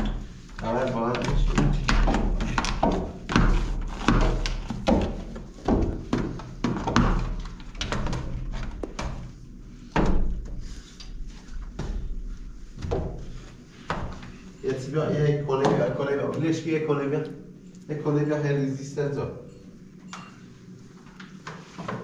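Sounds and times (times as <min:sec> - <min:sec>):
mop knocking and scrubbing glass: 0:00.0 - 0:09.2
steady low hum: 0:00.0 - 0:22.0.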